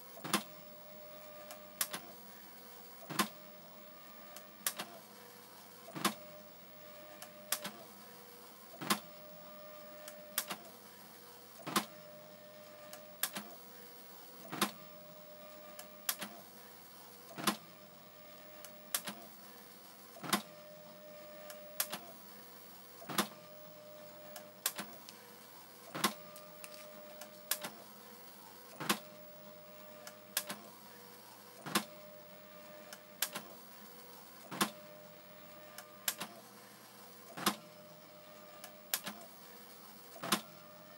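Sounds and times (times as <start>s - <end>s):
printer click: 25.9s - 27.8s, 35.8s - 36.4s.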